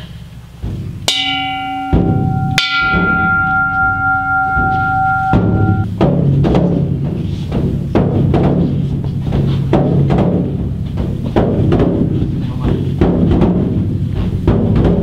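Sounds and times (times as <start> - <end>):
deep drum beats: 0.5 - 15.0
temple bell ringing: 1.1 - 5.9.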